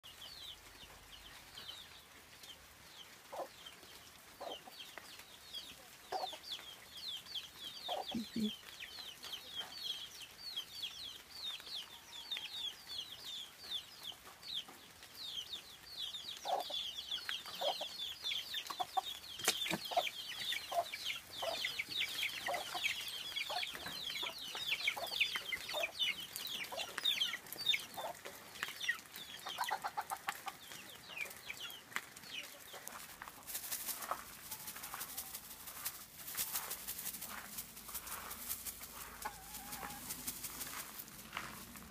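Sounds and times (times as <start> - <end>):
chicks peeping: 0.0 - 41.9
hen clucking: 7.9 - 8.5, 18.6 - 31.8, 32.4 - 40.8.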